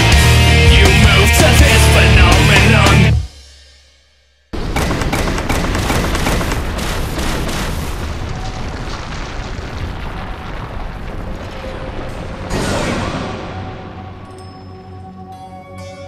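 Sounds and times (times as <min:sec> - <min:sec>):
rumbling crash with rapid knocks: 0:04.6 - 0:10.0, 0:11.0 - 0:14.2.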